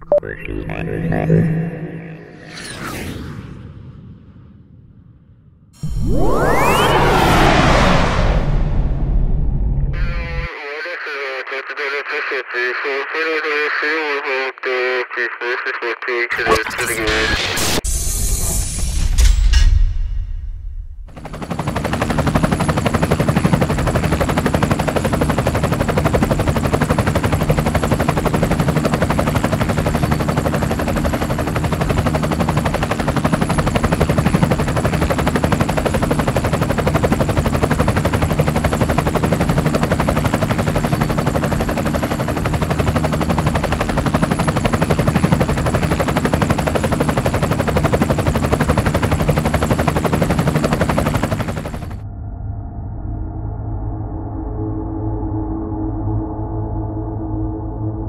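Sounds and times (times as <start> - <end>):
drone propellers buzzing: 0.0 - 3.7, 5.8 - 10.5.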